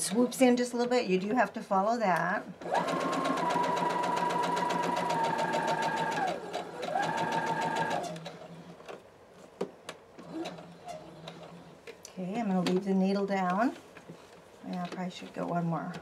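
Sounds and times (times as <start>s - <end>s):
sewing machine stitching: 2.6s - 8.7s, 10.2s - 11.8s.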